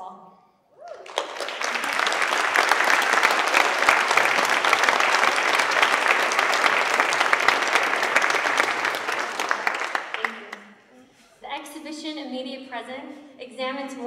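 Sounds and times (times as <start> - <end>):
audience applauding: 0.8 - 10.7.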